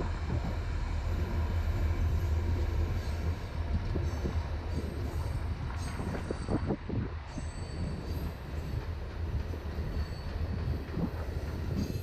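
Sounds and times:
train wagons rumbling on rails: 0.0s - 12.0s
wheel squeals: 7.3s - 8.8s, 9.8s - 10.9s.

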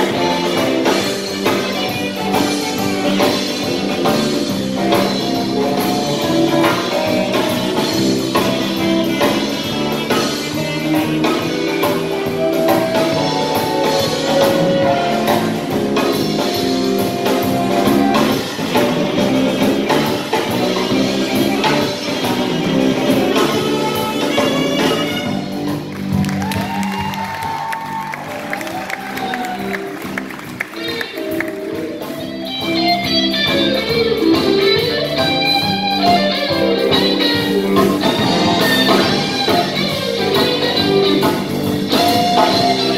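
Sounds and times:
saxophones: 0.0s - 26.0s
bass: 0.0s - 42.9s
drum kit groove: 0.0s - 42.9s
electric guitars: 0.0s - 42.9s
keyboard: 0.0s - 42.9s.

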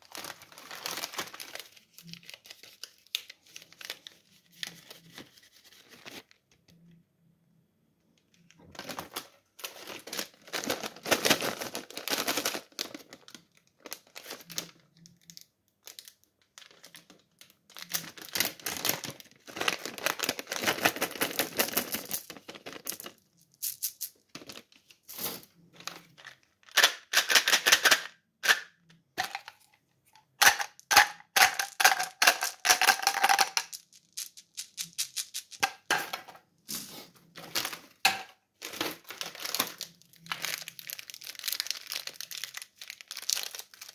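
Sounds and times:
plastic pouch crinkling: 0.0s - 6.3s, 8.7s - 23.2s, 36.7s - 43.9s
gum pellets clicking: 30.4s - 35.9s.

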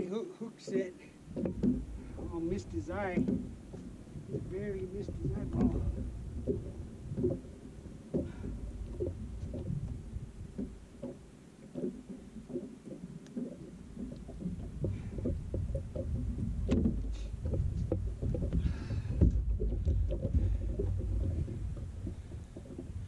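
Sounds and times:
water slapping: 0.0s - 23.0s
wind buffeting microphone: 0.7s - 23.0s
low rumble: 1.0s - 23.0s
knocks against boat hull: 1.3s - 7.5s.

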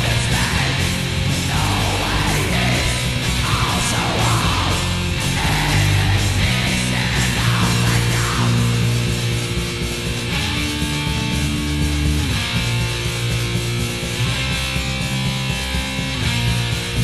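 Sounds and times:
distorted electric guitars: 0.0s - 17.0s
low bass notes: 0.0s - 17.0s.

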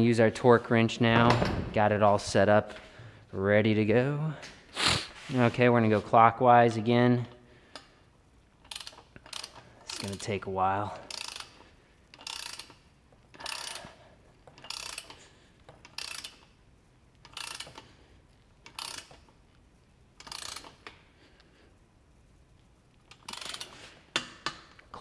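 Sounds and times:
torque wrench ratcheting: 8.6s - 10.4s, 11.0s - 16.6s, 17.2s - 17.9s, 18.6s - 19.4s, 20.2s - 21.0s, 23.1s - 24.6s.

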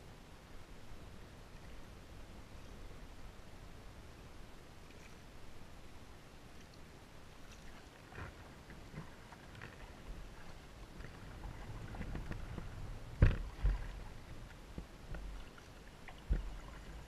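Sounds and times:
paddle splashes and drips: 6.5s - 17.0s.

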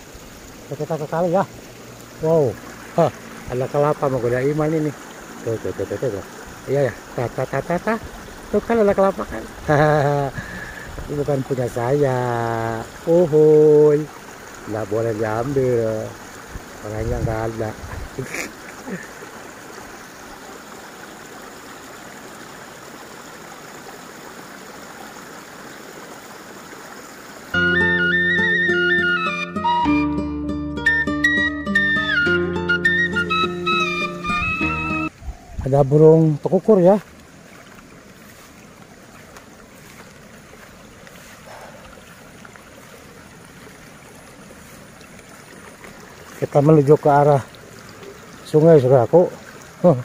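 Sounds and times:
wind hiss on microphone: 0.0s - 20.7s, 34.2s - 36.8s
flowing stream water: 0.0s - 50.0s.

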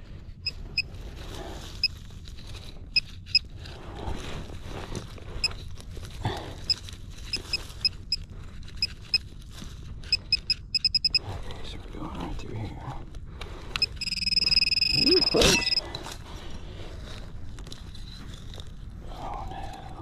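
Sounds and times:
short electronic beeps: 10.1s - 11.2s, 13.8s - 15.9s.

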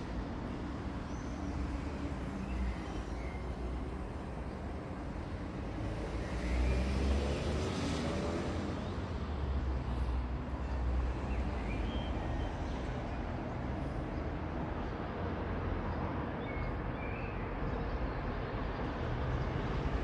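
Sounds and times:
low rumble of traffic: 0.0s - 20.0s
vehicle engine passing by: 5.7s - 9.3s.

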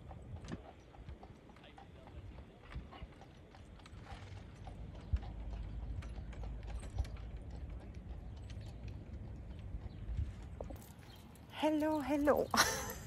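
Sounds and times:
horse hooves on pavement: 0.0s - 12.8s.

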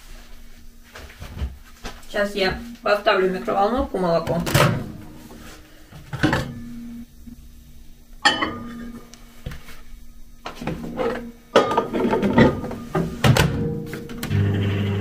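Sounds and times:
dishes clinking and knocking: 6.1s - 6.6s, 8.2s - 9.0s, 10.7s - 13.7s.

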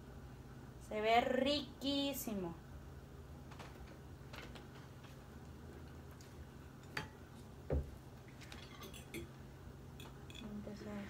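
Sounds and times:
low steady hum: 0.0s - 11.0s
forks clinking on plates: 8.6s - 9.3s, 10.0s - 10.5s.

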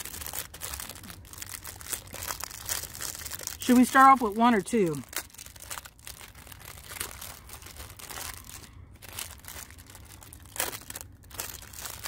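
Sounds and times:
plastic packaging crinkling: 0.0s - 12.0s
low rumble: 5.0s - 12.0s.

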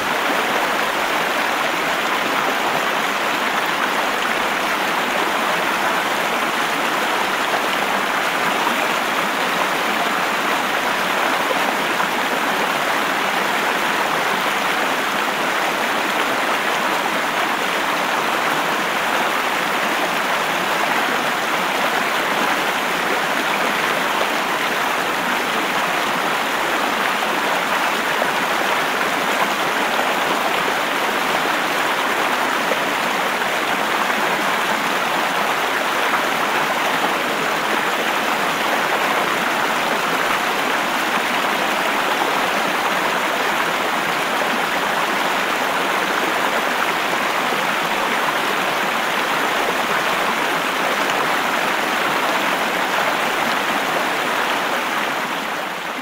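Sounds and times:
rushing river water: 0.0s - 56.0s.

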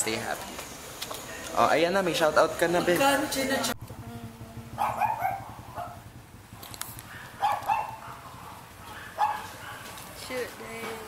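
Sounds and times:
dog barking: 4.8s - 6.1s, 7.1s - 10.2s.

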